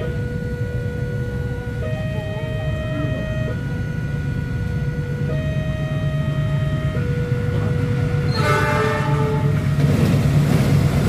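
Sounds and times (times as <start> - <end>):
level crossing two-tone alarm: 0.0 - 8.8
locomotive horn: 0.0 - 10.0.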